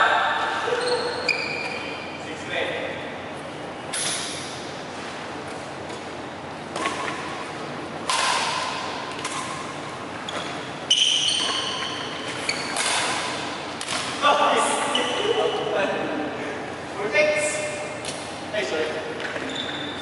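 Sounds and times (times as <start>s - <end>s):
rackets striking a shuttlecock: 6.7s - 7.4s, 8.0s - 9.8s, 11.3s - 14.2s.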